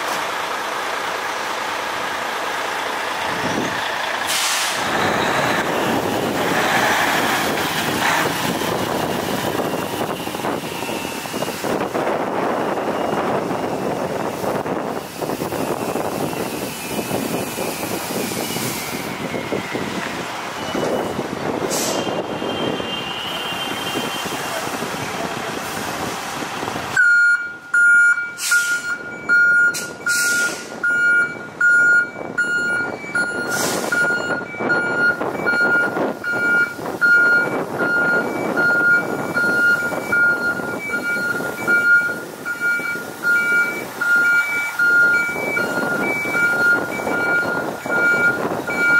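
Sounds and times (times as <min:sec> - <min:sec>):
truck diesel engine running: 0:00.0 - 0:21.9, 0:24.6 - 0:48.9
short hisses: 0:04.3 - 0:04.9
reversing alarm beeping: 0:20.6 - 0:21.2, 0:27.0 - 0:48.9.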